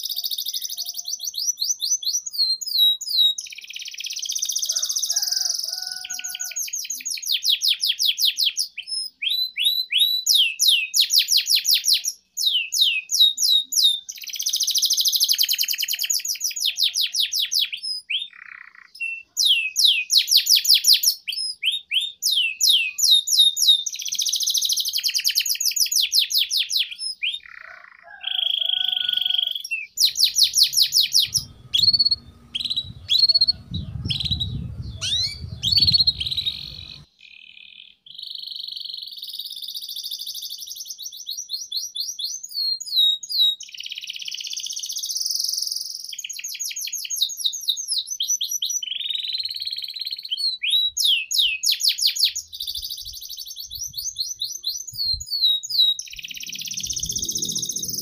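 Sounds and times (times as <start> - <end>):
canary singing trills: 0.0 - 5.2, 26.8 - 39.2, 48.8 - 58.0
low rumble: 30.3 - 37.0, 56.2 - 58.0.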